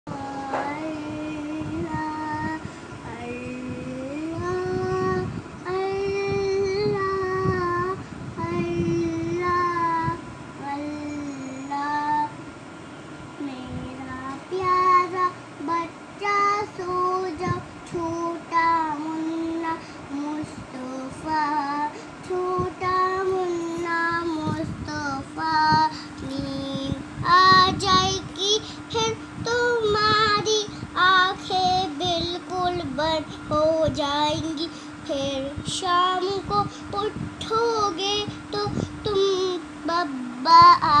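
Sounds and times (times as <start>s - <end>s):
child singing: 13.4s - 41.0s.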